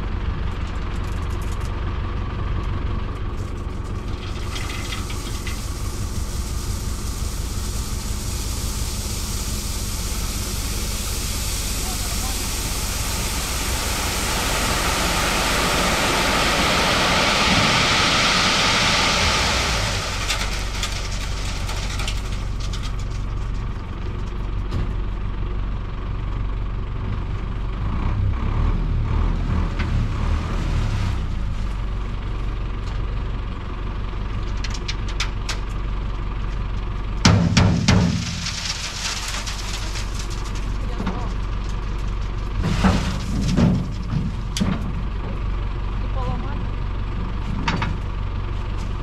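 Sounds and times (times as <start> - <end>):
truck engine running: 0.0 - 49.0
loud rushing hiss: 5.2 - 21.1.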